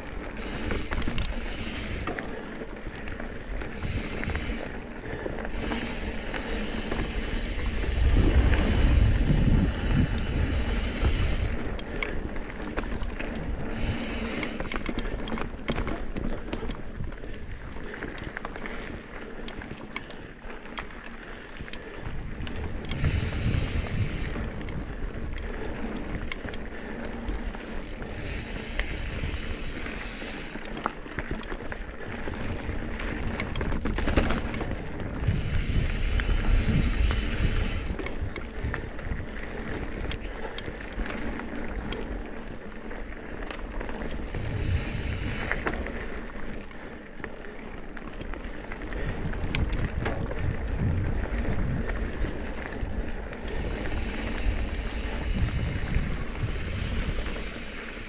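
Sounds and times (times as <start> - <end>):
bike rattling clicks: 0.0 - 58.0
bike tyres rolling on dirt: 0.0 - 58.0
wind rushing over microphone: 5.5 - 12.0, 21.6 - 26.6, 32.2 - 40.9, 44.1 - 45.9, 48.9 - 58.0.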